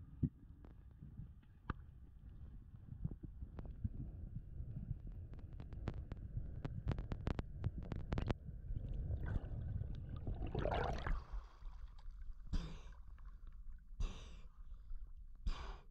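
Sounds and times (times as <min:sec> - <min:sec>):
water rushing: 0:10.4 - 0:11.4
sharp breaths: 0:15.5 - 0:15.9.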